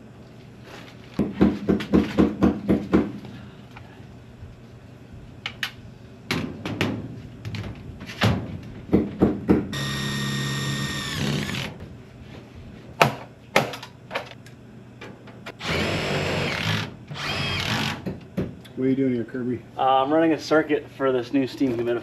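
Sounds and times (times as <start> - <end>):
cordless drill motor whirring: 9.8 - 11.7, 15.6 - 18.0.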